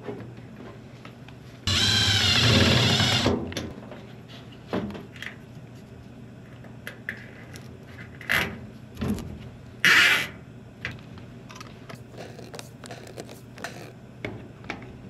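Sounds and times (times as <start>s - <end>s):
power drill running: 1.7s - 3.4s.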